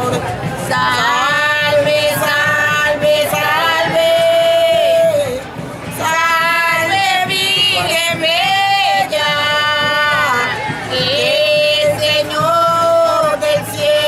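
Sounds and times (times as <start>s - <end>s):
women singing unaccompanied: 0.0s - 14.0s.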